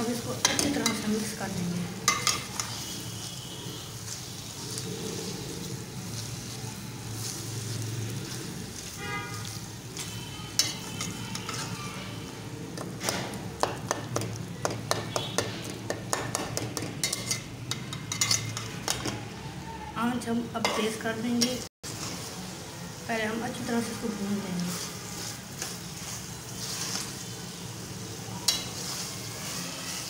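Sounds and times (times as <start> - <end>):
meat sizzling in oil: 0.0 - 19.6, 20.6 - 30.0
spatula scraping and clicking on pot: 2.1 - 2.9, 10.0 - 11.8, 12.8 - 19.2.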